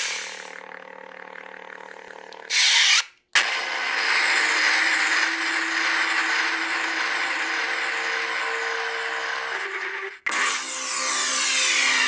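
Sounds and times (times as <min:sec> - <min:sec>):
lightsaber buzzing hum: 0:00.0 - 0:03.3.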